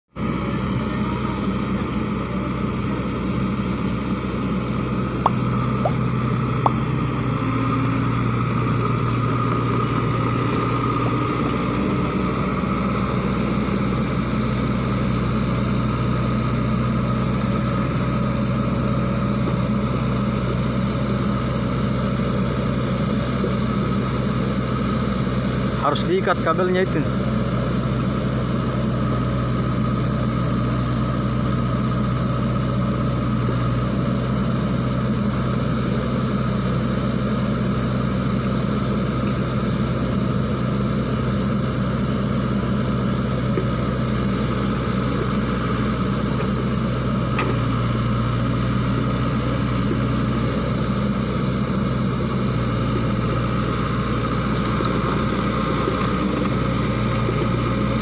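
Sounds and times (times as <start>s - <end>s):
excavator diesel engine running: 0.1s - 58.0s.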